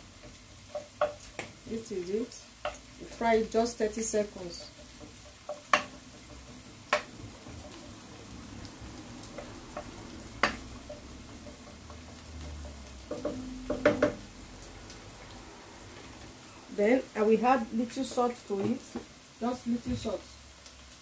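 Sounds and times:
onions sizzling in oil: 0:00.0 - 0:21.0
wooden spoon knocking on pan: 0:00.2 - 0:01.6, 0:02.6 - 0:08.0, 0:09.2 - 0:14.3, 0:18.0 - 0:19.1.

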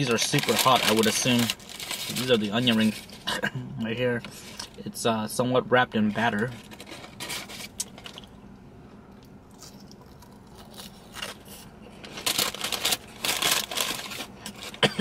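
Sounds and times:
crunching and chewing onion ring: 0:09.1 - 0:14.9.

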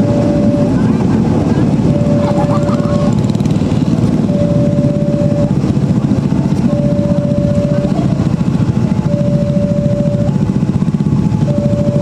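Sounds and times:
level crossing warning beeps: 0:00.0 - 0:03.2, 0:04.2 - 0:05.7, 0:06.5 - 0:08.3, 0:09.0 - 0:10.6, 0:11.2 - 0:12.0
low vehicle rumble: 0:00.0 - 0:12.0.

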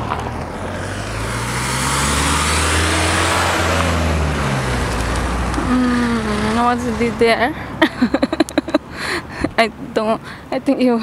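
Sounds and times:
car passing by: 0:00.0 - 0:07.8.

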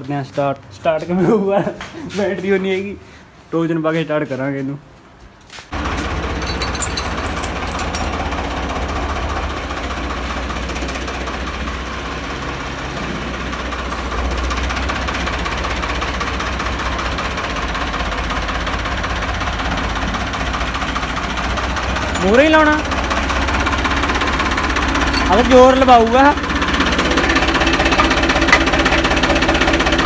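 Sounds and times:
light clinks: 0:06.4 - 0:08.2, 0:22.2 - 0:22.6, 0:25.1 - 0:25.8
tractor diesel engine running: 0:13.2 - 0:30.0.

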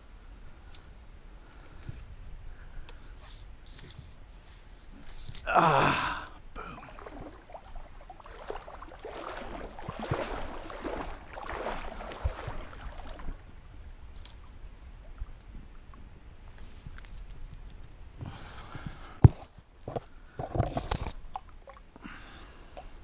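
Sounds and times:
kayak paddle splashing in water: 0:05.4 - 0:15.8.

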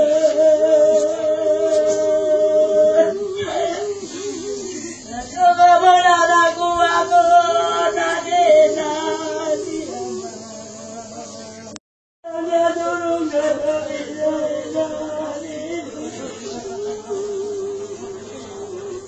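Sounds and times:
slow singing with held notes: 0:00.0 - 0:19.0.

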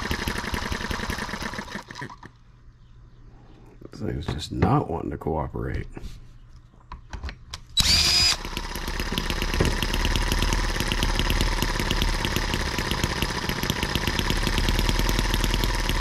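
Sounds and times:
small model engine running: 0:00.0 - 0:02.3, 0:07.8 - 0:16.0
cordless drill whining: 0:07.8 - 0:16.0.

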